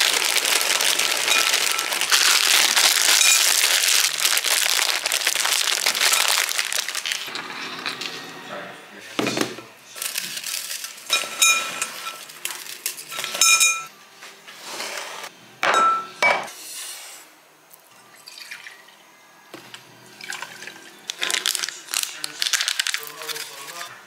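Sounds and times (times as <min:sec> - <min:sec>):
biscuits crunching in glass bowl: 0:00.0 - 0:07.3, 0:21.1 - 0:23.9
clinks off glass: 0:13.4 - 0:13.9.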